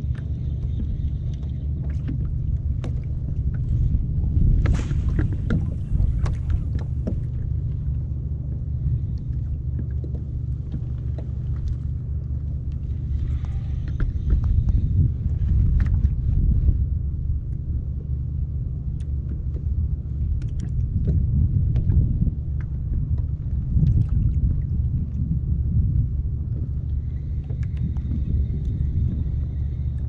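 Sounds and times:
knocks and slaps on hull: 0.0s - 7.8s, 9.7s - 11.9s, 19.2s - 25.9s
low rumble: 0.0s - 30.0s
water lapping against plastic hull: 0.0s - 30.0s.

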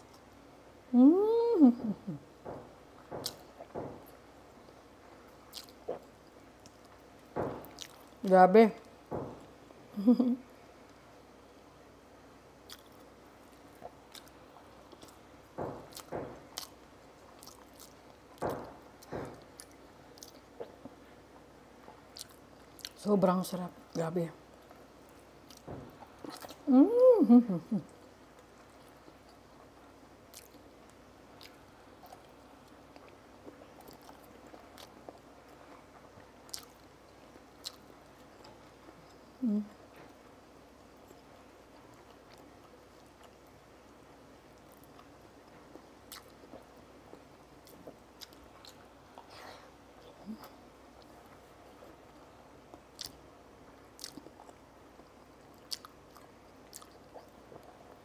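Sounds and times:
person quietly chewing: 4.6s - 8.2s, 12.6s - 23.1s, 24.6s - 58.0s.

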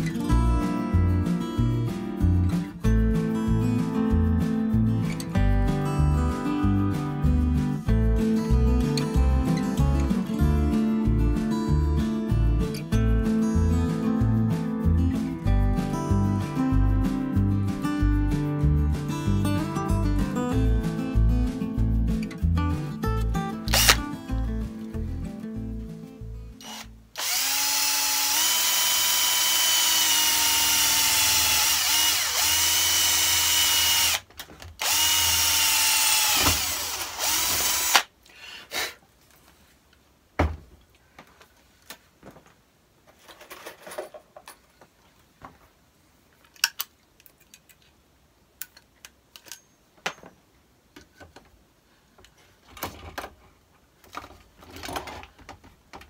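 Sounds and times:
drill boring through steel sheet: 23.7s - 24.0s, 26.6s - 34.2s, 34.8s - 38.1s
pop-rivet gun: 23.7s - 24.0s, 26.6s - 34.2s, 34.8s - 38.1s.

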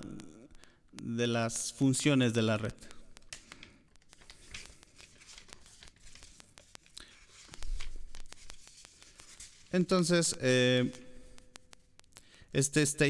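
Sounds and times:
rustling handling noise: 3.2s - 10.4s.

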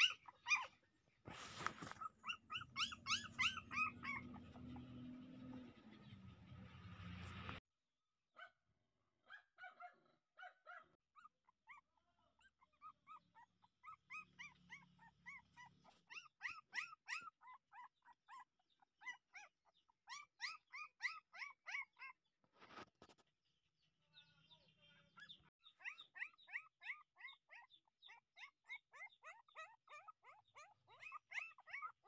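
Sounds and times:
puppy whimpering: 0.0s - 0.8s, 1.6s - 5.7s, 11.2s - 22.2s, 25.8s - 32.0s.

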